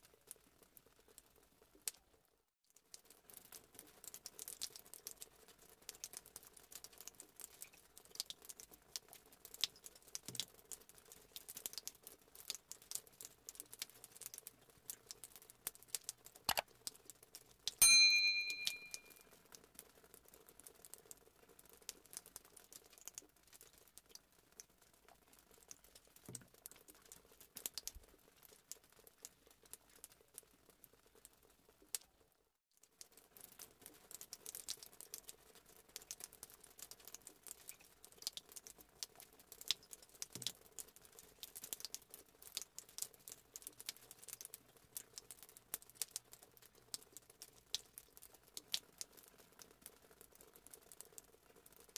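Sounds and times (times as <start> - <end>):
faint clicks and crinkles: 0.0 - 17.8, 18.5 - 51.9
bright bell-like chime: 17.8 - 19.2.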